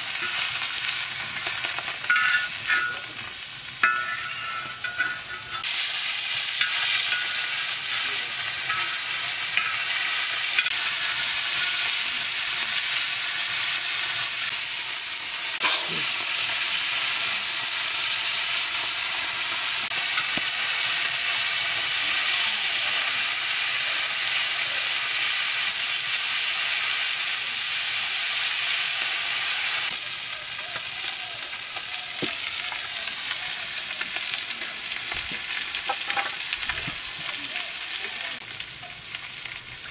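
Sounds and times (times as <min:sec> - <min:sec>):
fish sizzling in hot oil: 0:00.0 - 0:39.9
metal spatula clinking on pan: 0:02.0 - 0:03.2, 0:03.8 - 0:05.7, 0:06.6 - 0:08.0, 0:08.6 - 0:10.0.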